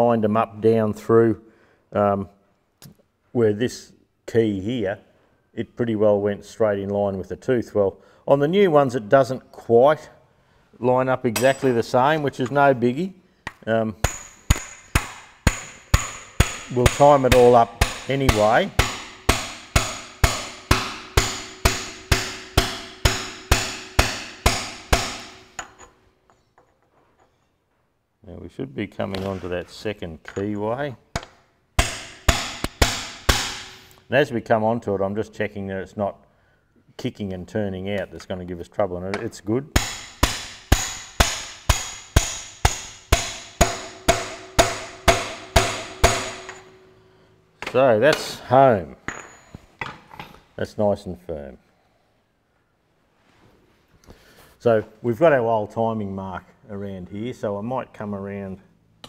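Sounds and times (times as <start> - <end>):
hammer striking metal: 11.4 - 12.3, 14.0 - 25.9, 31.2 - 33.8, 39.8 - 48.4.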